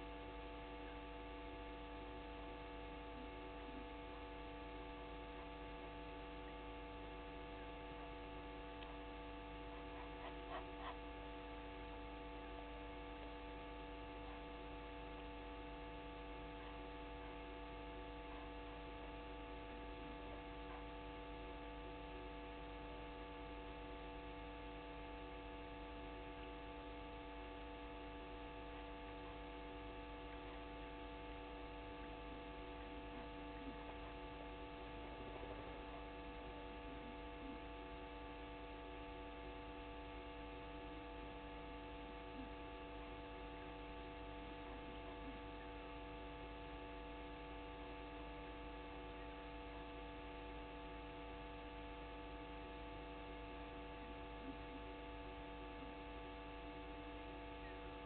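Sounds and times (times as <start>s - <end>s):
steady electrical hum: 0.0s - 58.0s
faint ticks: 8.8s - 9.0s.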